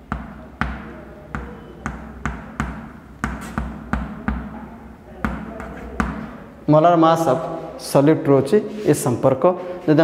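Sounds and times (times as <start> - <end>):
writing scratch on a board: 3.2 - 4.4.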